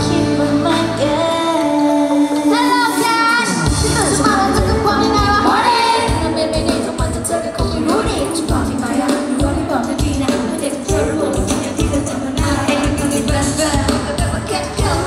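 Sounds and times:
female voices singing pop song: 0.0 - 15.0
live band playing: 0.0 - 15.0.

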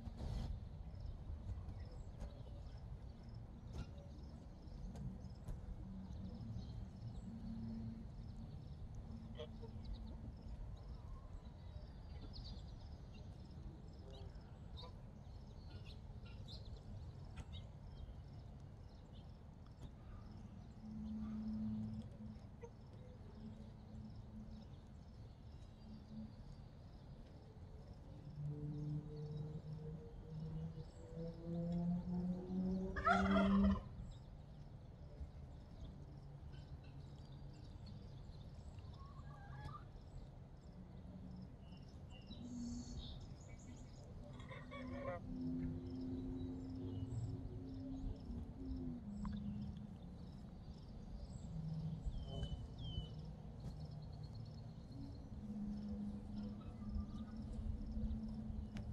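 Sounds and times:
geese grunting and honking: 32.9 - 33.9, 44.3 - 45.2
low background rumble: 33.8 - 58.9.

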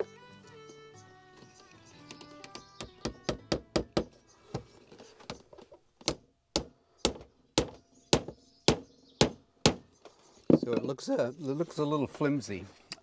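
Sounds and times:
hammer striking wood: 2.8 - 4.2, 6.0 - 9.9.

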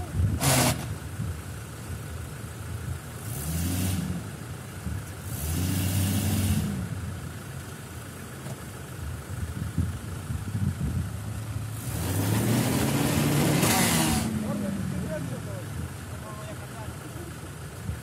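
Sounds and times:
engine revving: 0.0 - 1.0, 3.2 - 4.4, 5.2 - 7.0, 11.5 - 15.7.

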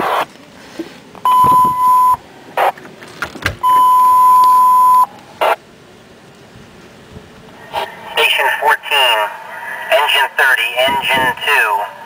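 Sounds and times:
radio static bursts: 0.0 - 0.3, 1.4 - 2.8, 5.4 - 5.6, 7.7 - 12.0
high alert beeps: 1.3 - 2.2, 3.6 - 5.1.

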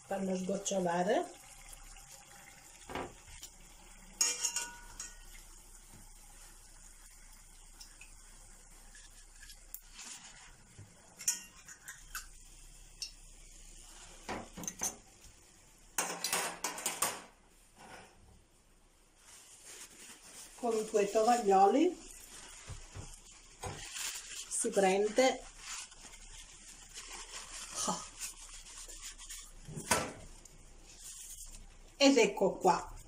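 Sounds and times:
metal utensil clinking on steel pot: 4.2 - 5.3, 11.2 - 12.2.

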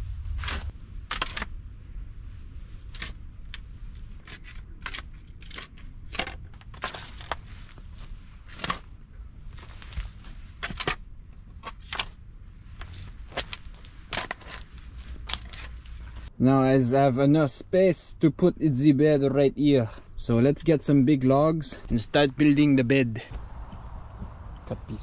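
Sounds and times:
shovel digging into earth: 0.2 - 1.5, 4.2 - 8.9, 12.8 - 16.3.

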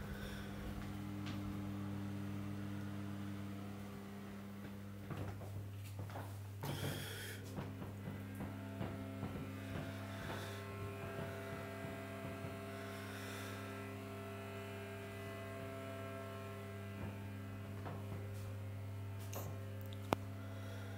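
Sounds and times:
electrical hum: 0.0 - 20.9
faint knocks: 4.6 - 13.3.

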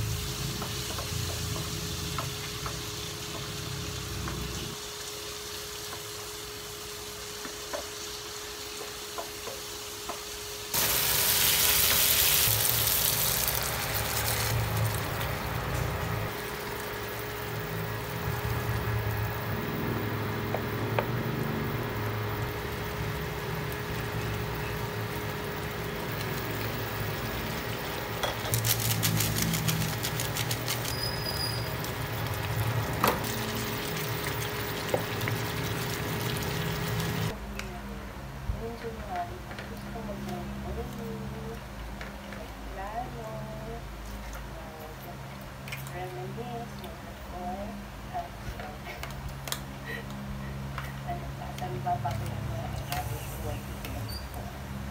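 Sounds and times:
food sizzling in a frying pan: 0.0 - 37.4, 52.2 - 54.4.

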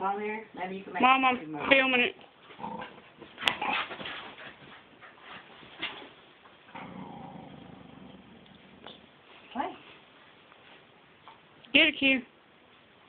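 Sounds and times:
dog growling: 2.5 - 3.9, 6.7 - 9.0
dogs tussling: 2.5 - 6.3.

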